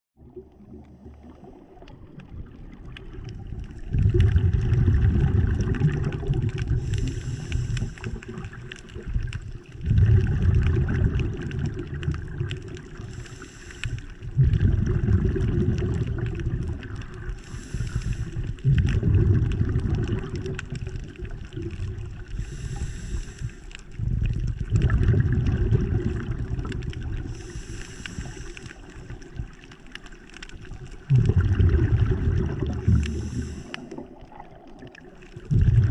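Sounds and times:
exhaled bubbles rumbling underwater: 0.2 - 35.9
regulator breath hiss: 6.8 - 8.3, 13.1 - 14.2, 17.4 - 18.6, 22.3 - 23.8, 27.3 - 29.1, 32.9 - 34.0.

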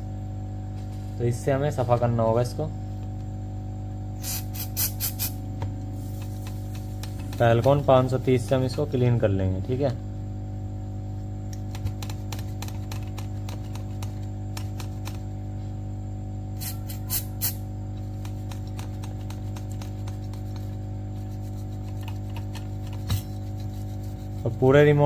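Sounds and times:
electrical hum: 0.0 - 25.0
cleaner spray hissing: 4.2 - 5.4, 6.0 - 7.4, 16.6 - 17.6
cloth wiping circuit board: 16.6 - 25.0.

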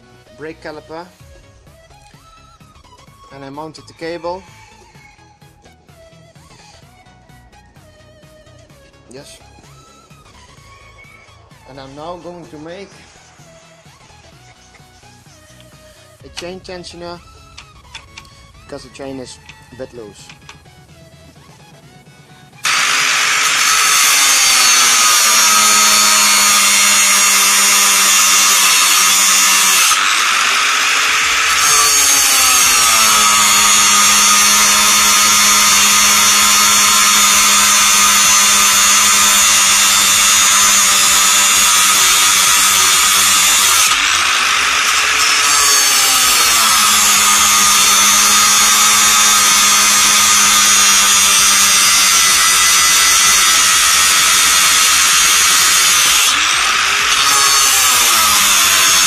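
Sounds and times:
angle grinder cutting steel: 22.6 - 59.0.

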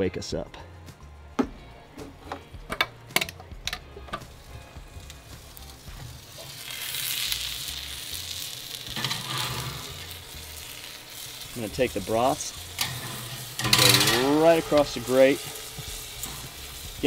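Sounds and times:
food sizzling on grill grate: 4.1 - 17.0.

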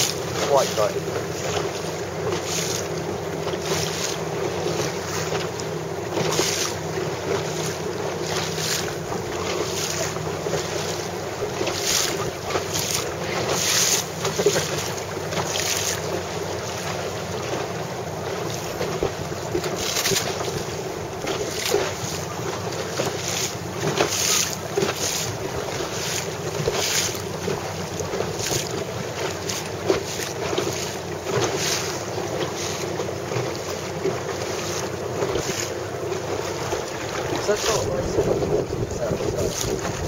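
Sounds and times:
sea wash: 0.0 - 40.0
wind rushing over microphone: 37.3 - 40.0.

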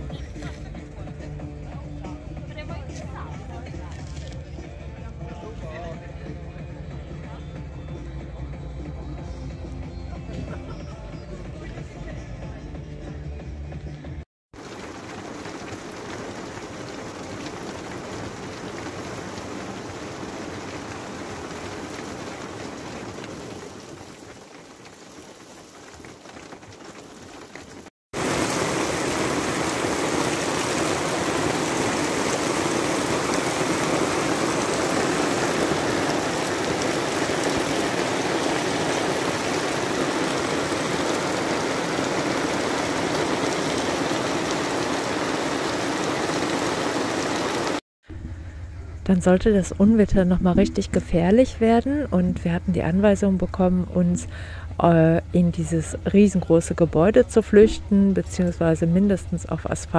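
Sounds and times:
heavy rain on asphalt: 14.5 - 47.8.

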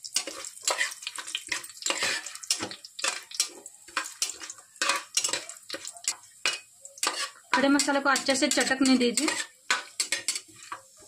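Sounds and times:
spices sizzling in oil: 0.0 - 11.0
spatula scraping metal pot: 0.2 - 11.0.

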